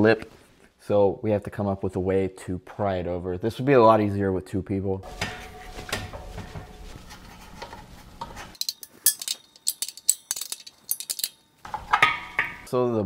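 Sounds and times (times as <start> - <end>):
workshop noise: 5.0 - 12.7
metal tools clinking on metal frame: 7.6 - 12.7.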